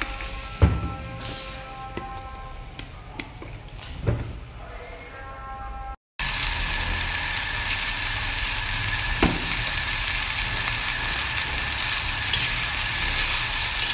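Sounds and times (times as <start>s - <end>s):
music: 0.0s - 6.0s
rice sizzling in a wok: 6.2s - 13.9s.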